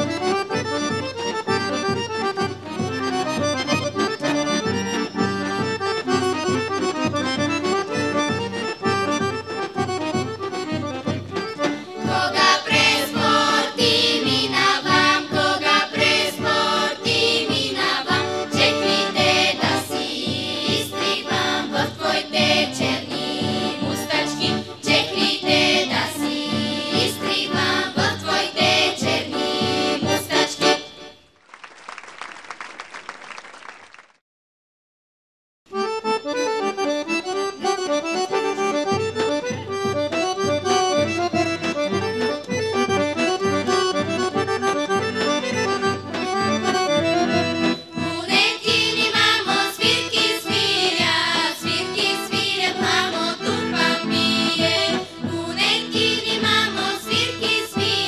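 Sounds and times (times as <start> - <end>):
accordion: 0.0 - 31.4, 35.7 - 58.0
girls' choir singing: 12.0 - 30.8, 48.0 - 58.0
applause: 31.4 - 34.2.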